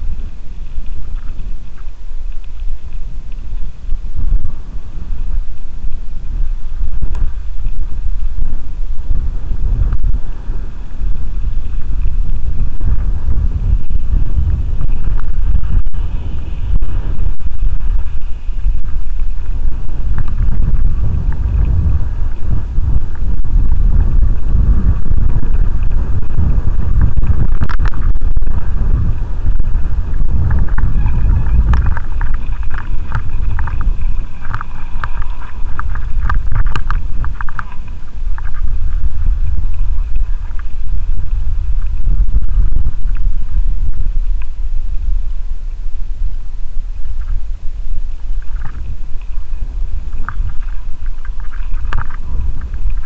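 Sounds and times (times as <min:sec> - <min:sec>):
wind buffeting microphone: 0:00.0 - 0:53.0
tyres rolling on gravel: 0:29.8 - 0:40.8.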